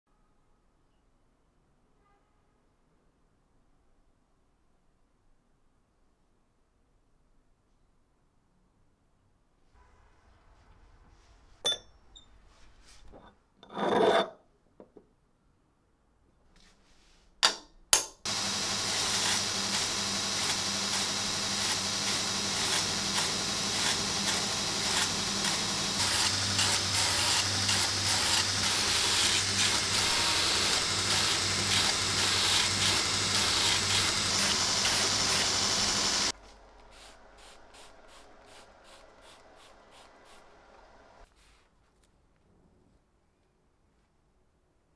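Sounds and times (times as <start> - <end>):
belt grinder grinding steel: 18.3 - 36.4.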